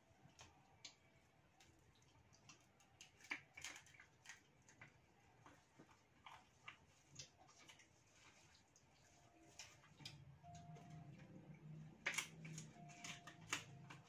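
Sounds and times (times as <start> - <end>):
shrimp shells cracking: 2.5 - 4.9.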